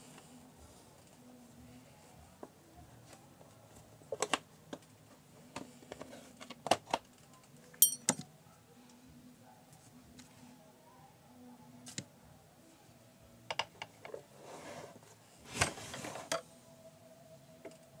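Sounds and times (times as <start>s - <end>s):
metallic clink: 7.8s - 8.2s.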